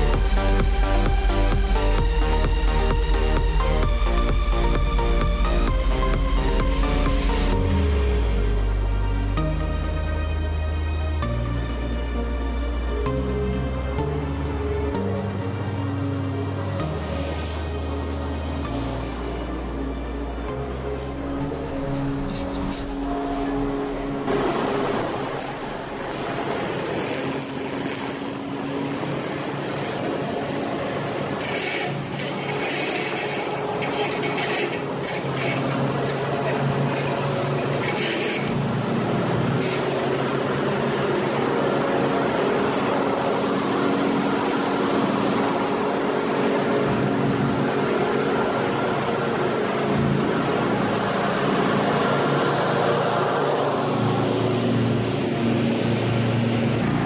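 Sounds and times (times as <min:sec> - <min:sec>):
lawn mower engine running: 0:15.6 - 0:57.0.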